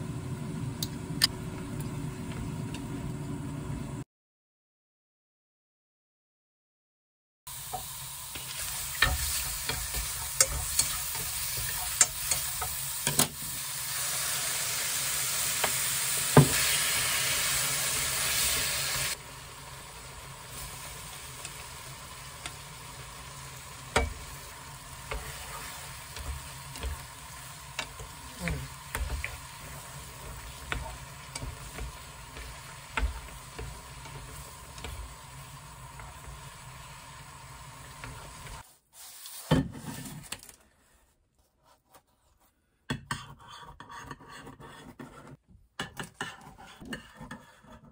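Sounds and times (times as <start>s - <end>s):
shrimp sizzling in butter: 7.5s - 39.5s.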